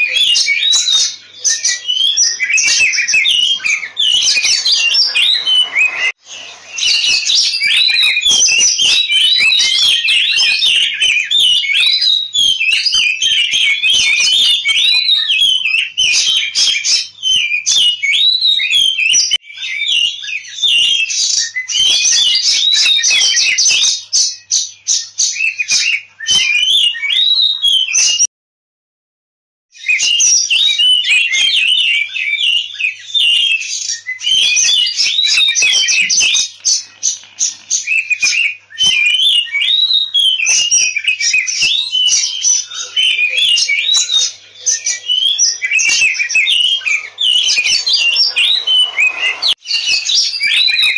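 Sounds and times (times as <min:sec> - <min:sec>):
bird singing whistles and chatter: 0:00.0 - 0:28.3, 0:29.8 - 0:50.9.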